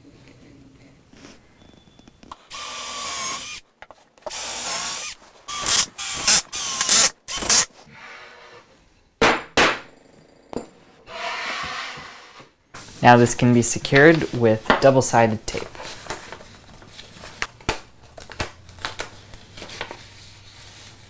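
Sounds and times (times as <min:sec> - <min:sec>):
cordless drill whining: 0:02.5 - 0:03.6, 0:04.3 - 0:07.7.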